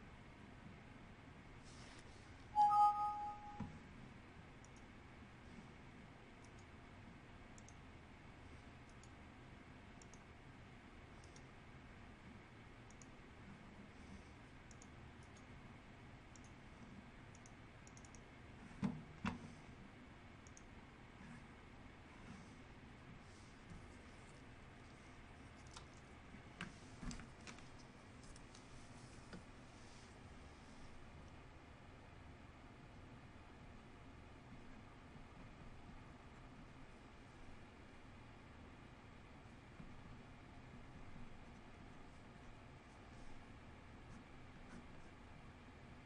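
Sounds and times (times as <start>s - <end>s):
two-pitch ringing tone: 2.6s - 3.6s
computer mouse clicks: 4.6s - 4.9s, 6.4s - 6.7s, 7.6s - 7.8s, 8.8s - 9.2s, 10.0s - 10.3s, 11.2s - 11.5s, 12.8s - 13.2s, 14.7s - 15.5s, 16.3s - 16.6s, 17.3s - 19.5s, 20.4s - 20.7s, 25.5s - 27.6s.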